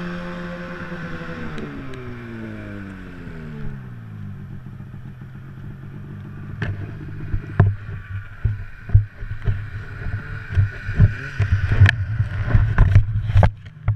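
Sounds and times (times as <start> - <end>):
snowmobile engine idling: 0.0 - 13.4
sharp knocks and bumps: 6.4 - 13.9.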